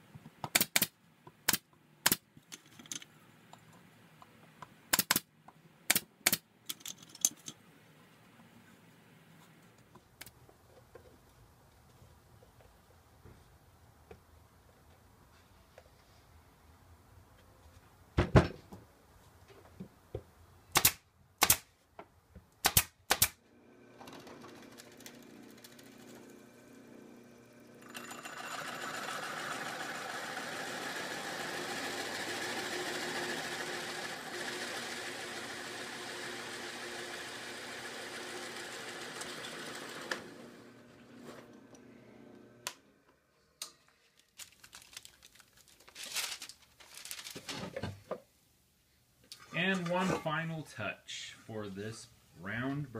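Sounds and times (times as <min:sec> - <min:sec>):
drill press motor running: 0:23.5 - 0:42.7
drill bit boring wood: 0:23.7 - 0:42.6.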